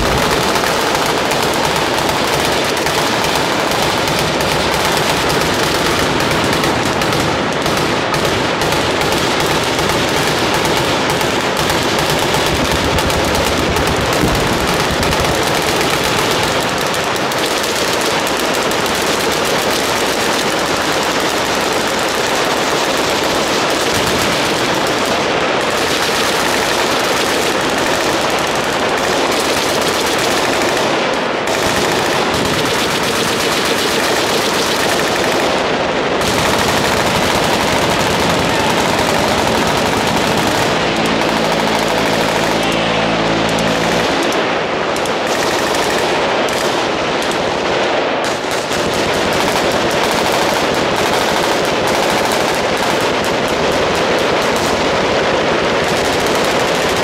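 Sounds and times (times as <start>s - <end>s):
machine-gun fire: 0.0s - 57.0s.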